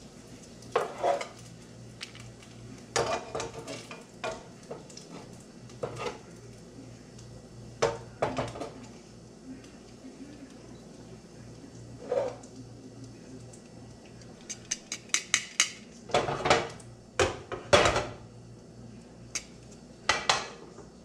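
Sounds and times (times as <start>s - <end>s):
light sizzle of frying: 0.0s - 21.0s
metal tongs clinking against pan: 14.2s - 15.9s, 19.3s - 19.6s.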